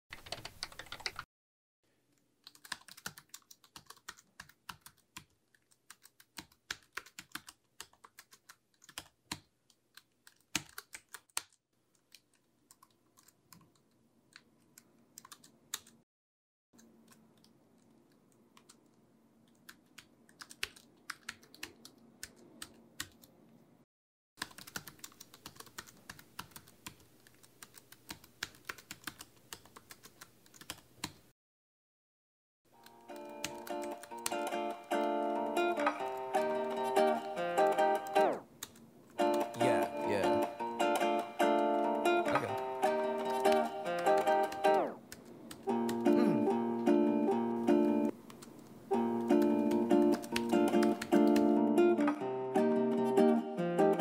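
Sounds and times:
computer keyboard typing: 0:00.1 - 0:01.3, 0:02.4 - 0:16.0, 0:18.6 - 0:23.3, 0:24.4 - 0:31.2, 0:32.8 - 0:35.1, 0:37.8 - 0:40.5, 0:42.4 - 0:46.1, 0:48.1 - 0:51.6.

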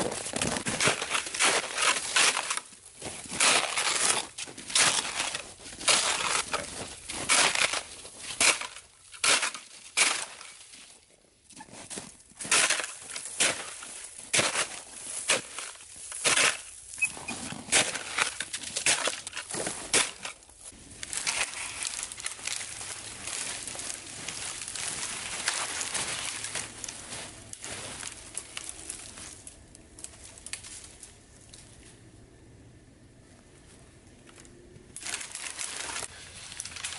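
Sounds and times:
shovel scraping snow: 0:00.0 - 0:10.4, 0:11.7 - 0:28.2
twigs snapping: 0:18.2 - 0:31.8, 0:34.2 - 0:36.9
dry brush rustling: 0:19.3 - 0:31.8.

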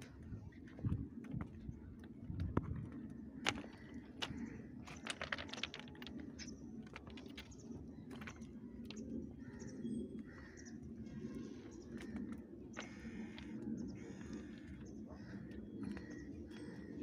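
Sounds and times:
footsteps crunching on stones: 0:02.4 - 0:09.0, 0:12.8 - 0:14.8.

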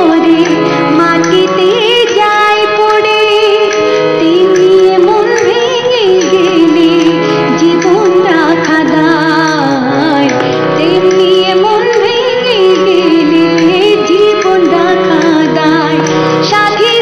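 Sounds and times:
harmonium sustained chords: 0:00.0 - 0:17.0
woman singing ornamented notes: 0:00.0 - 0:17.0.

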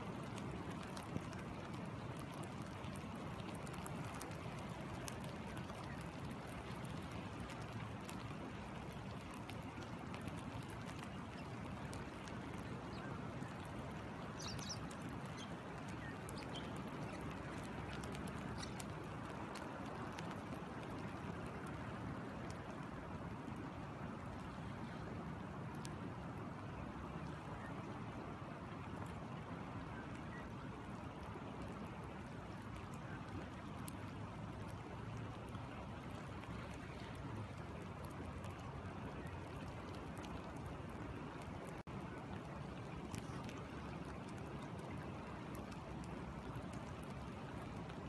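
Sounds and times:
rain ticking: 0:00.0 - 0:48.0.

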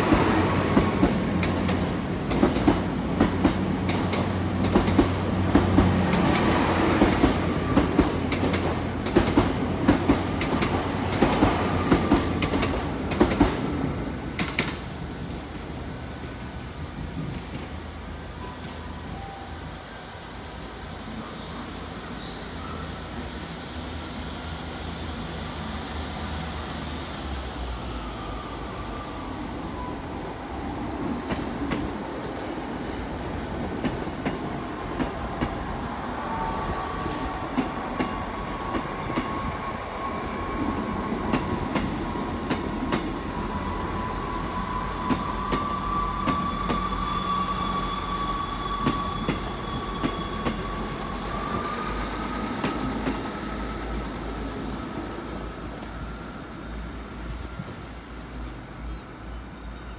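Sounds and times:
diesel train engines running: 0:00.0 - 0:59.9.

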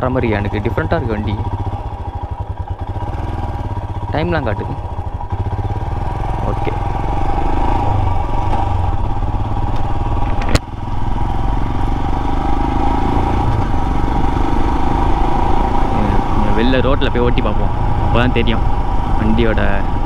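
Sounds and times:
motorcycle engine pulling away: 0:00.0 - 0:20.0.

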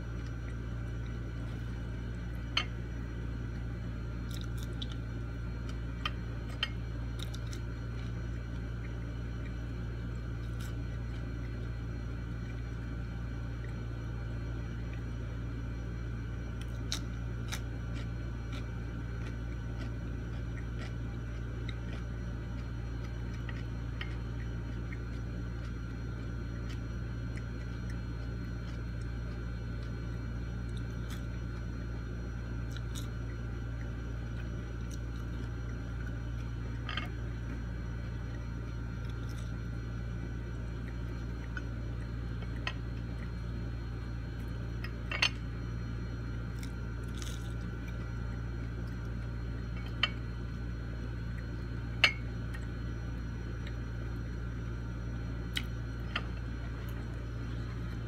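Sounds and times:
low hum: 0:00.0 - 0:58.0
faint chewing: 0:16.4 - 0:50.4.

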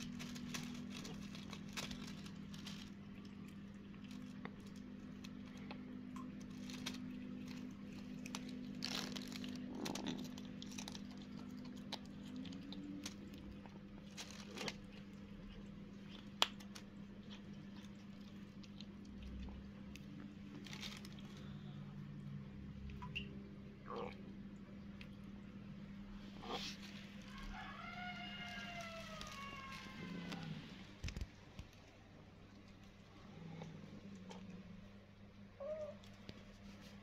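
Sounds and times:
plastic bin bag crinkling: 0:00.0 - 0:18.6, 0:19.9 - 0:21.6, 0:26.5 - 0:32.0
faint steady hum: 0:00.0 - 0:37.0
kitten chewing and crunching food: 0:00.0 - 0:37.0.

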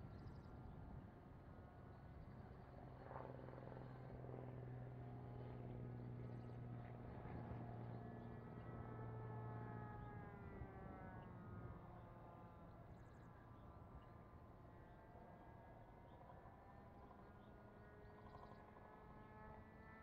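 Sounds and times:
model airplane motor droning: 0:05.0 - 0:14.4.

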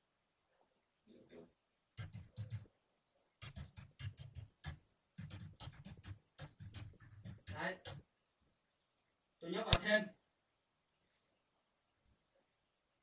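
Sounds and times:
typing on computer keyboard: 0:02.0 - 0:02.7, 0:03.4 - 0:08.0.

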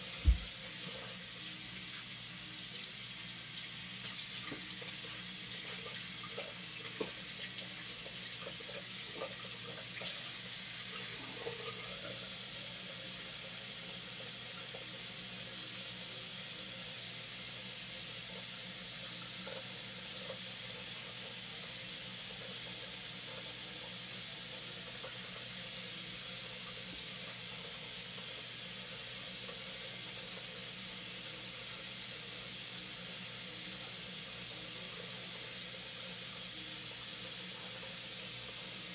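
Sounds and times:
tap water running into sink: 0:00.0 - 0:02.7, 0:03.6 - 0:15.8, 0:18.2 - 0:31.9.

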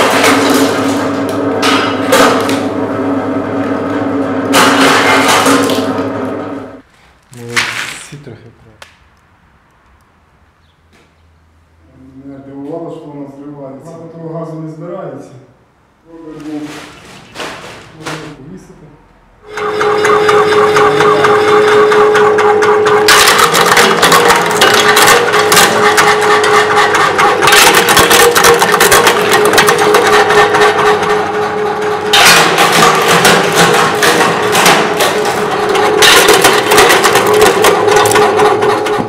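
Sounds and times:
motor hum: 0:00.0 - 0:06.8, 0:19.4 - 0:39.0
walnuts cracking and rattling: 0:23.1 - 0:30.5.

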